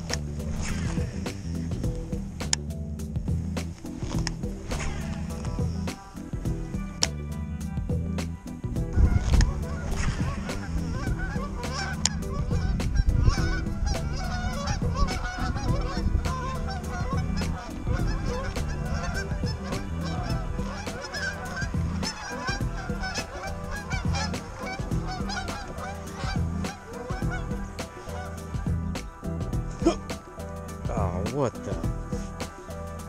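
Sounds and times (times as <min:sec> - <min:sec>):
geese honking: 0:08.9 - 0:30.8.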